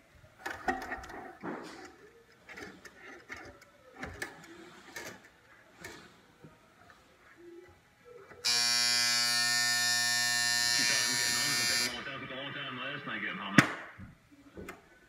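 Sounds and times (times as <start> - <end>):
alarm buzzer: 8.4 - 12.1.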